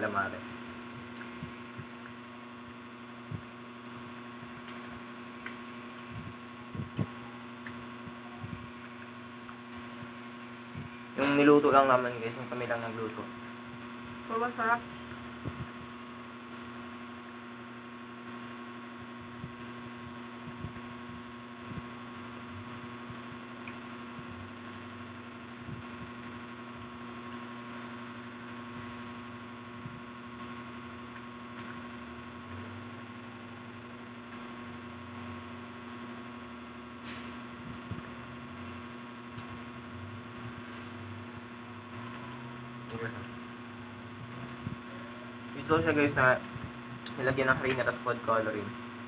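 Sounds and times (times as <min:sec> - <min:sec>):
electrical hum: 0:00.0 - 0:49.0
people eating crunchy food: 0:21.6 - 0:29.0, 0:33.4 - 0:36.2.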